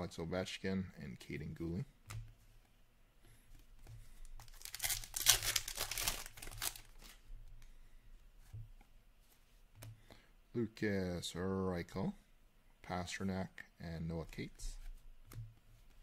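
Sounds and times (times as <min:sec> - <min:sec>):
wrapper and cards rustling: 0:03.4 - 0:07.3
foil wrapper tearing and crinkling: 0:04.5 - 0:07.2.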